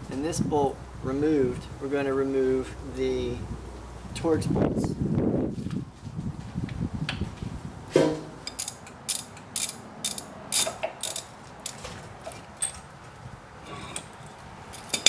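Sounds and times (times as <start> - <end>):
sharp metal knock: 7.9 - 8.7
ratchet wrench clicking: 8.4 - 11.8.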